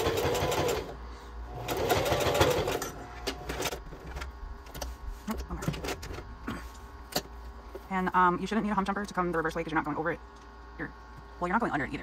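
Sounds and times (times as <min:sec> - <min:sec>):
sewing machine stitching: 0:00.0 - 0:00.9, 0:01.6 - 0:03.7.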